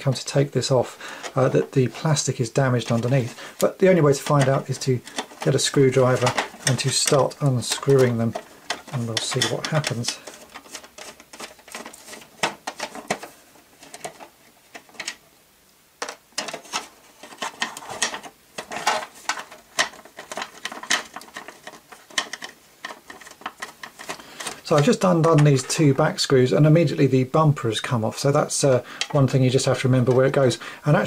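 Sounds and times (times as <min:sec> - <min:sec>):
plastic toy handled: 0:00.0 - 0:15.3, 0:16.0 - 0:26.1, 0:28.7 - 0:30.6.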